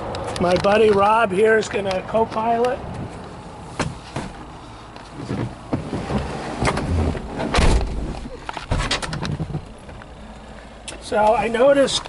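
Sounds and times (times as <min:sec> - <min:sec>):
clicks and rustling in car: 0:02.4 - 0:12.0
deep thump: 0:05.2 - 0:09.7.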